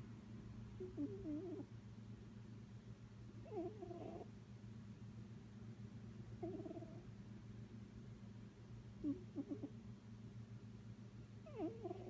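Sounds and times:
cat snoring: 0.8s - 1.7s, 3.4s - 4.3s, 6.4s - 7.0s, 9.0s - 9.7s, 11.4s - 12.0s.

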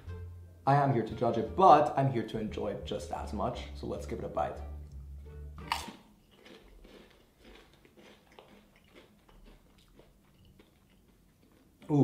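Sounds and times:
chewing crisp: 4.9s - 12.0s
potato chip snapping in a bite: 5.6s - 9.6s.

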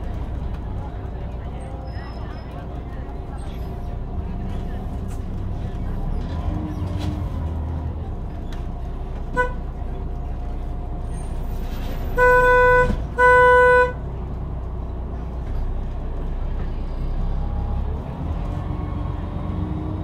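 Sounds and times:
engine and street traffic rumble: 0.0s - 20.0s
vehicle horn honking: 9.3s - 9.6s, 12.2s - 14.0s.

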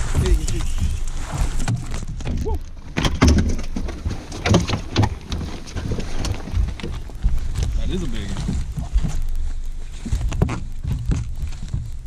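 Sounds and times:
knocks and thumps on boat deck: 0.0s - 7.8s, 10.1s - 12.0s
wind rumble on microphone: 0.0s - 12.0s.

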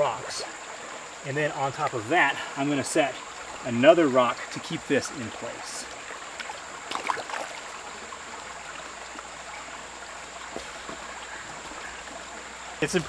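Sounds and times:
creek water flowing over rocks: 0.0s - 13.0s
rock splashing into water: 6.4s - 7.6s.

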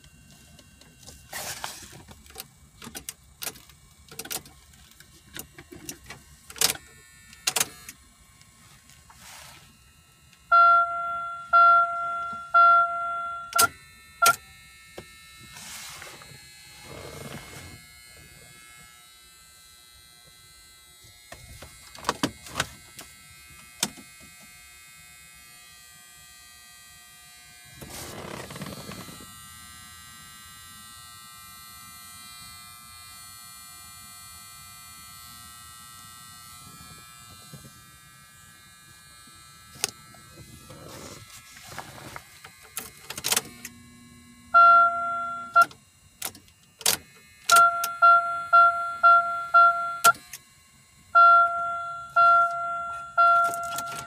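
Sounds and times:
faint steady hum: 0.0s - 54.0s
dashboard warning chime: 10.5s - 14.4s, 44.5s - 45.7s, 47.5s - 50.2s, 51.2s - 54.0s.

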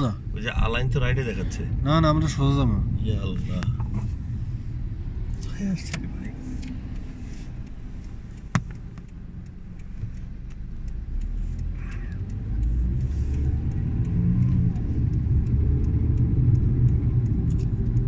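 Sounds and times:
car engine and road rumble: 0.0s - 18.0s
sharp click: 5.8s - 13.8s.

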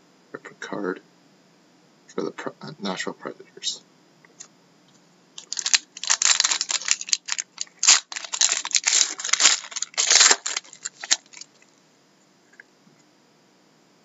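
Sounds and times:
foil wrapper tearing and crinkling: 5.4s - 11.6s.

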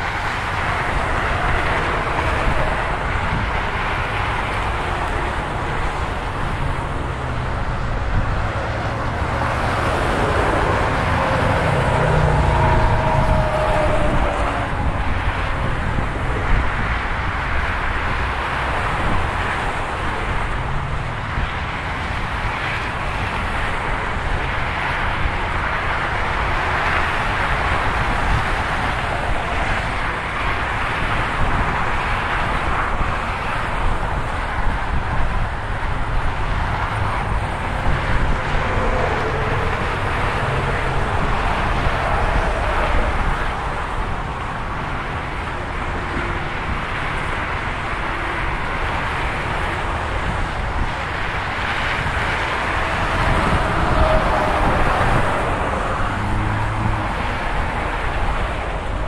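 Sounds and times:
freeway traffic rushing past: 0.0s - 59.0s.

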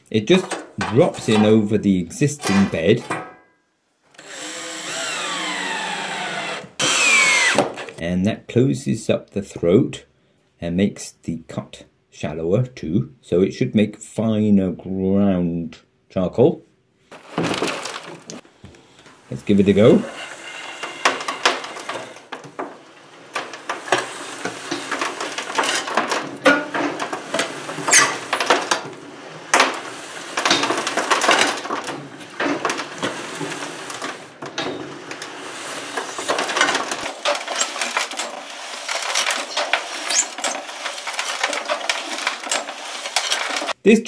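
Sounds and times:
blade crunching charcoal: 4.2s - 8.0s, 35.2s - 43.8s
charcoal pieces rattling on steel: 17.1s - 18.4s, 19.3s - 43.8s.

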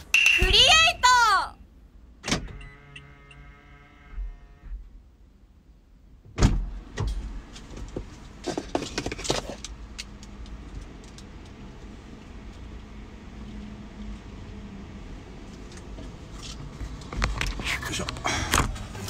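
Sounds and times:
loud thump in car: 6.3s - 7.1s.

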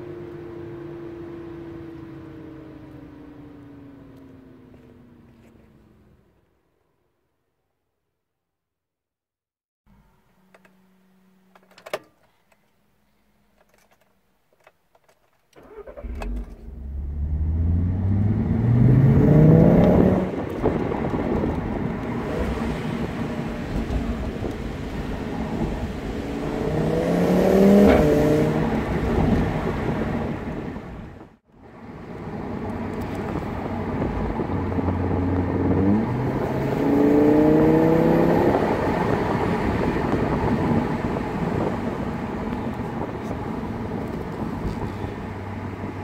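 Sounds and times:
car engine accelerating hard: 15.6s - 31.2s, 32.2s - 46.0s.

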